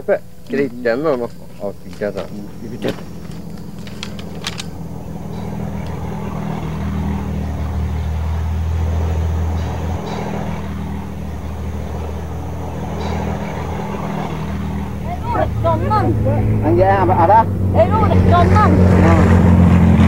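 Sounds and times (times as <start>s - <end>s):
propeller plane engine drone: 0.0s - 20.0s.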